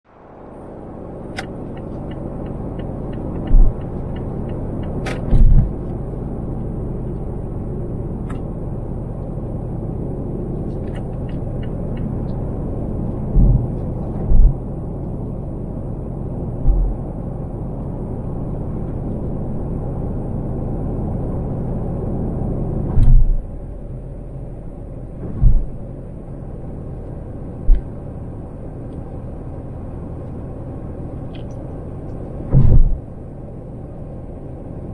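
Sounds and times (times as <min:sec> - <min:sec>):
car engine and tyre rumble: 0:00.0 - 0:34.9
tyres thumping over road joints: 0:32.5 - 0:33.0.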